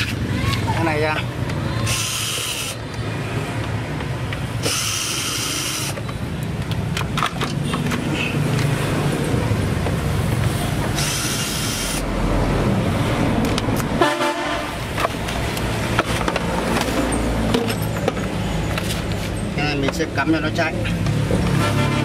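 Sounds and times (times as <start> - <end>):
cordless drill running: 4.6 - 6.0.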